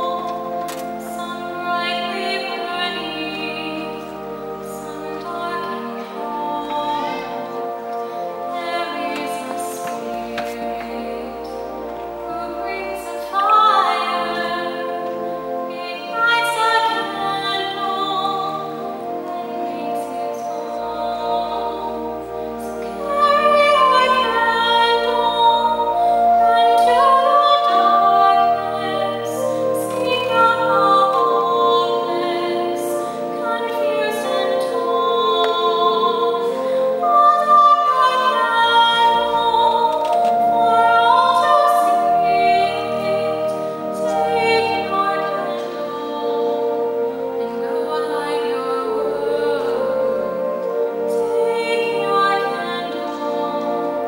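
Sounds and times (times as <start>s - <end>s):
pipe organ chords: 0.0s - 54.0s
woman singing gospel: 0.0s - 54.0s.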